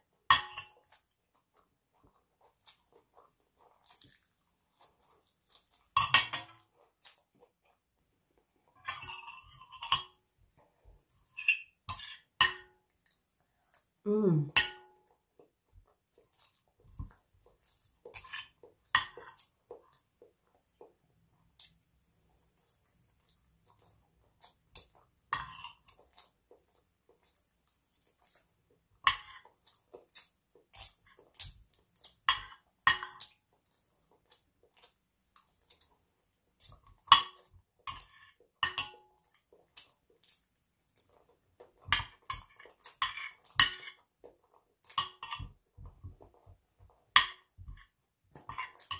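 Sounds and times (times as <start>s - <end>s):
cutlery clinking on a plate: 0.3s - 1.0s, 5.9s - 6.7s, 8.8s - 10.2s, 11.3s - 12.8s, 32.3s - 33.4s, 37.1s - 39.1s, 41.8s - 44.0s, 44.9s - 45.6s, 47.2s - 48.9s.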